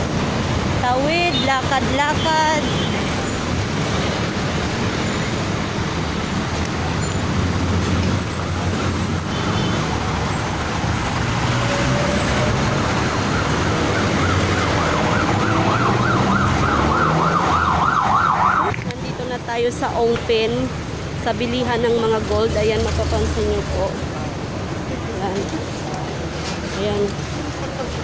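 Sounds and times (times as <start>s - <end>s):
vehicle engines passing: 0.0s - 28.0s
siren warbling yelp: 12.5s - 18.7s.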